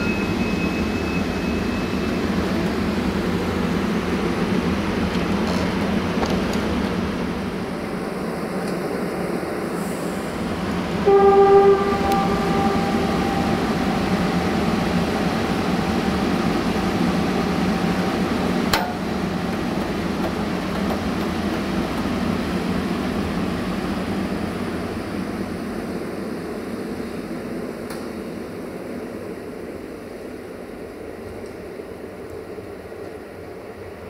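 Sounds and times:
train coaches rolling on rails: 0:00.0 - 0:24.2
locomotive horn blast: 0:11.0 - 0:15.0.

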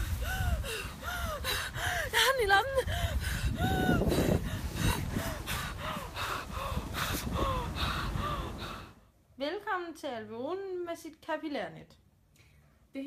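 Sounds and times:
woman gasping for breath: 0:00.0 - 0:02.2, 0:02.8 - 0:09.0
wind rumble on microphone: 0:00.0 - 0:09.0.

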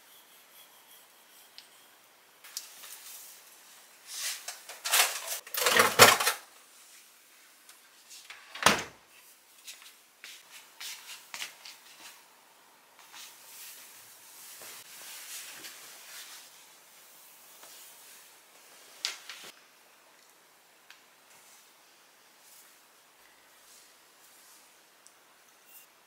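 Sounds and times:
rustling and scraping: 0:04.1 - 0:07.1.

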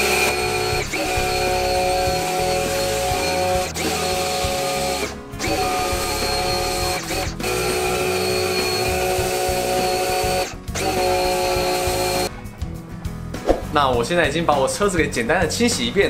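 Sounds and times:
pressure washer whining: 0:00.0 - 0:12.3.

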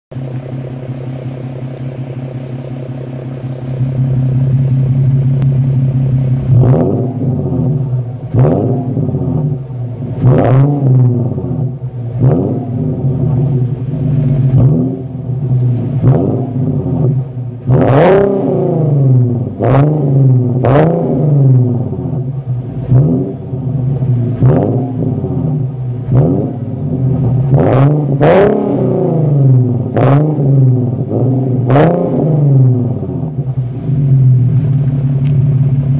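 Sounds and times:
car engine idling and revving: 0:00.1 - 0:35.9.

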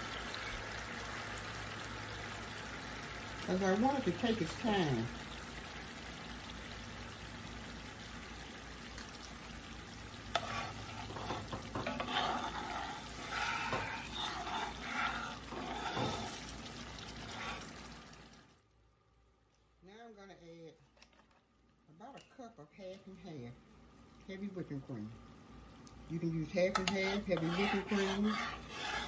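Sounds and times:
gravy simmering and bubbling: 0:00.0 - 0:19.8, 0:22.7 - 0:29.0
metal spatula scraping pan: 0:10.2 - 0:17.9, 0:26.6 - 0:29.0.

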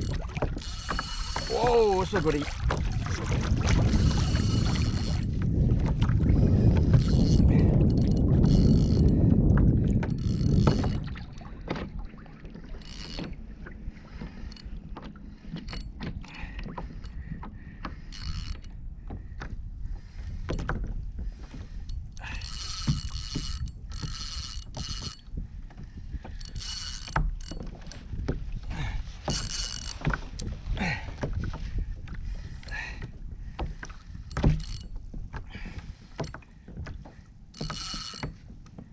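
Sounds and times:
fishing reel whirring: 0:00.0 - 0:02.8, 0:03.7 - 0:05.4, 0:06.5 - 0:09.2, 0:10.0 - 0:11.1, 0:12.8 - 0:13.4, 0:18.1 - 0:18.7, 0:22.2 - 0:25.3, 0:26.3 - 0:27.6, 0:29.3 - 0:30.5, 0:37.6 - 0:38.4.

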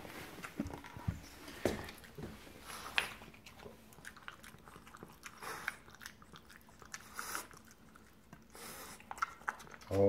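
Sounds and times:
dog chewing food: 0:00.0 - 0:10.0.

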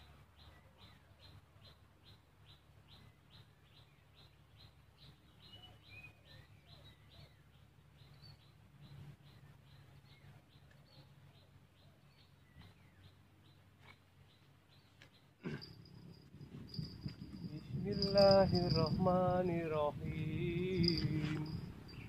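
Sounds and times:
bird chirping: 0:00.0 - 0:22.0
low background hum: 0:00.0 - 0:22.0
whistled bird notes: 0:02.9 - 0:11.5.

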